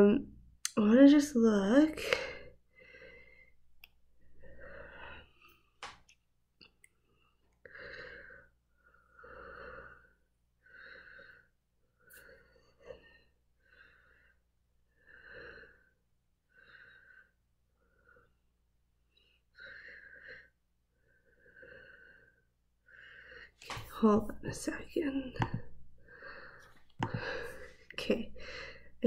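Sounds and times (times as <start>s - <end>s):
person breathing softly: 2.0s - 3.6s, 4.2s - 5.8s, 7.1s - 18.4s, 19.1s - 23.9s, 25.6s - 29.0s.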